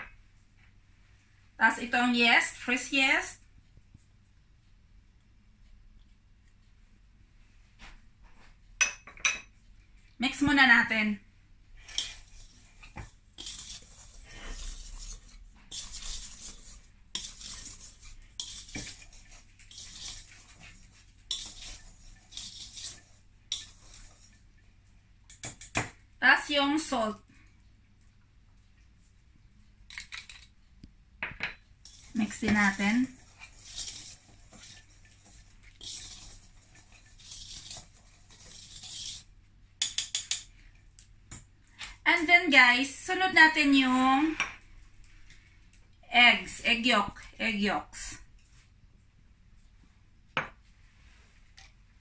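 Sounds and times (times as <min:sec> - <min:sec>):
wire whisk scraping metal bowl: 0:11.8 - 0:24.5, 0:31.8 - 0:40.5
whisk clinking: 0:13.4 - 0:24.4, 0:31.8 - 0:39.2, 0:39.8 - 0:40.5.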